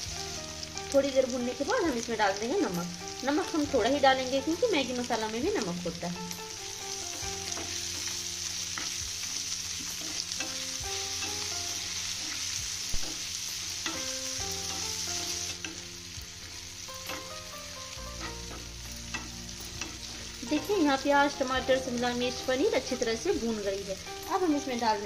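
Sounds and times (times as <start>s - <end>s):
vegetables sizzling in oil: 0.0s - 25.0s
spatula tapping pan: 18.1s - 21.1s.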